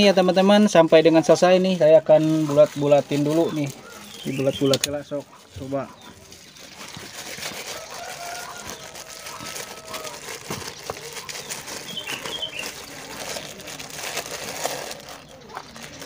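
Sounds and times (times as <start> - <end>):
plastic bags crinkling: 0.0 - 16.0.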